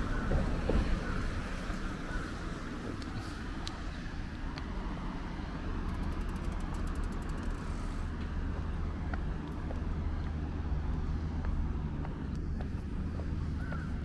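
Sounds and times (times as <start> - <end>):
traffic engine rumble: 0.0 - 14.0
light ticks: 11.4 - 13.3.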